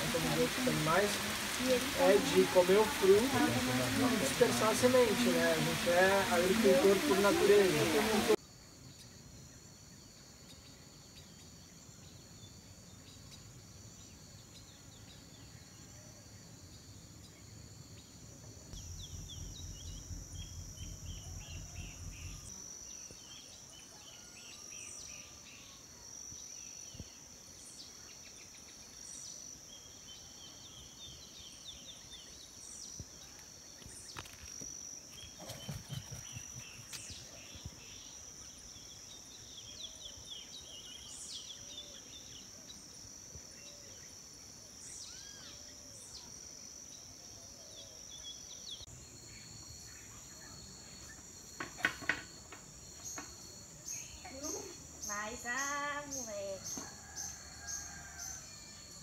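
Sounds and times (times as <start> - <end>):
insects shrilling: 0.0 - 8.4, 18.6 - 25.3
low throbbing rumble: 18.7 - 22.5.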